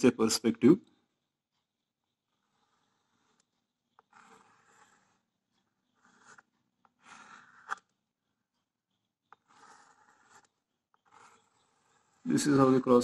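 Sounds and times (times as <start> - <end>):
chalk tapping: 1.5 - 13.0
chalk scraping on blackboard: 2.1 - 8.0, 8.9 - 13.0.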